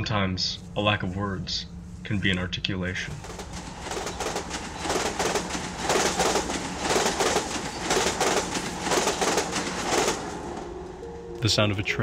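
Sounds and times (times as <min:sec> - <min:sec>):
rolling train rumble: 0:00.0 - 0:12.0
train wheels clacking over rails: 0:03.1 - 0:11.0.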